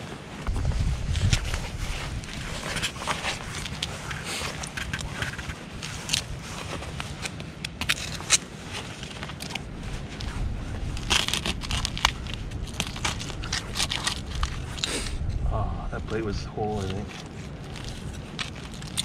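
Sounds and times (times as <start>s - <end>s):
digging scrapes in soil: 0.0s - 15.2s.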